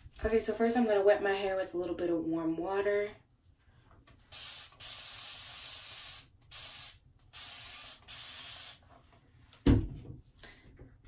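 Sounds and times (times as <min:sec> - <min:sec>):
spray bottle hissing: 0:04.3 - 0:08.8.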